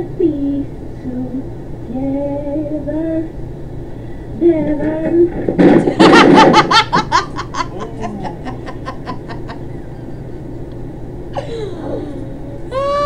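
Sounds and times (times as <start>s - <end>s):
woman laughing: 5.9s - 10.7s, 11.4s - 13.0s.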